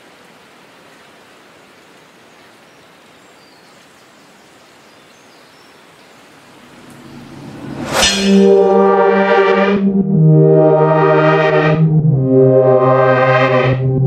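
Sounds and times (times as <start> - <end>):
soft rain-like hiss: 0.0 - 7.1.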